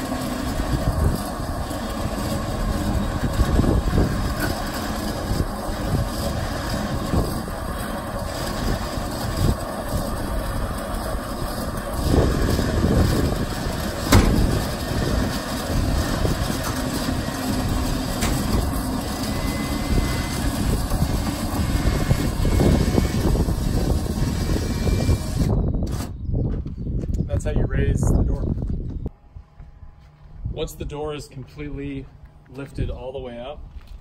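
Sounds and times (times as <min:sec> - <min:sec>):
electric winch running: 0:00.0 - 0:26.2
metal clank: 0:14.1 - 0:14.5.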